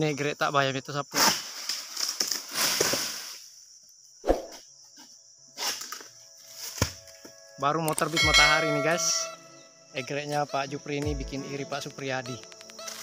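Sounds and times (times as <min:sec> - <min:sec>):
sickle cutting palm crown: 0:01.2 - 0:03.4, 0:05.6 - 0:07.1, 0:12.3 - 0:13.0
fronds rustling: 0:01.3 - 0:03.7.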